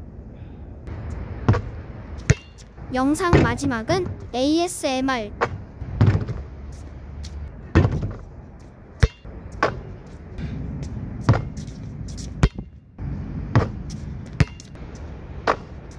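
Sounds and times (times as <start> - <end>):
basketball bouncing: 1.4 - 4.3, 5.4 - 6.4, 7.7 - 8.2, 11.2 - 11.8, 13.5 - 14.8.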